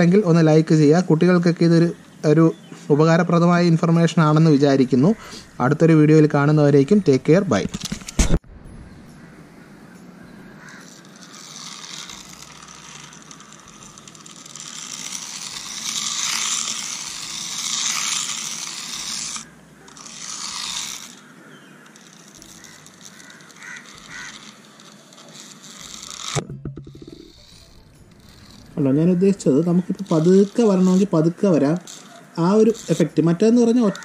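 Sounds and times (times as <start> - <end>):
small electric motor whirring: 10.0 - 34.0
tyres rasping over concrete: 10.5 - 34.0.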